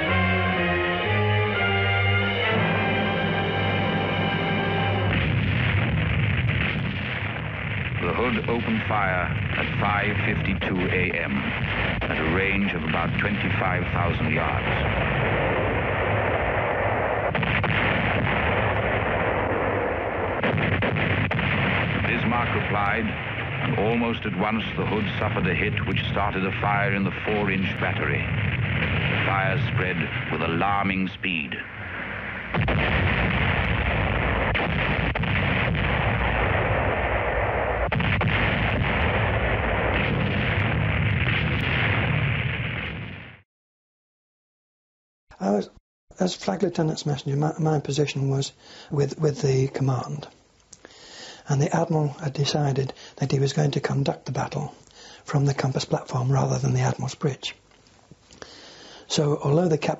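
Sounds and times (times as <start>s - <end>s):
battle noise din: 0.0s - 42.3s
heavy guns rumbling: 0.0s - 43.2s
sharp gun reports: 0.1s - 40.6s
naval gun reports: 6.6s - 15.5s, 17.4s - 32.6s, 45.3s - 50.3s, 51.2s - 57.6s, 58.5s - 59.9s.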